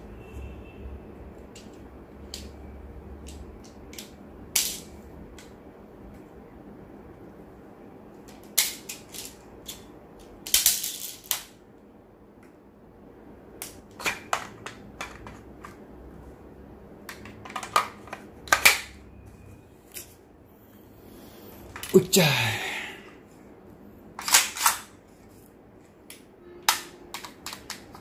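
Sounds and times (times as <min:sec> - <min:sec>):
metal magazine clicks and clacks: 0:24.2 - 0:24.9.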